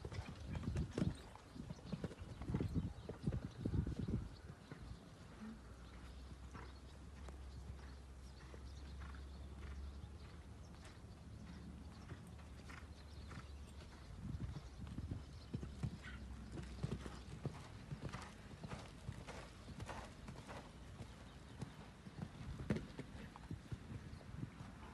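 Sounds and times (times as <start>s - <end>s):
horse hooves cantering on sand: 0.0s - 24.9s.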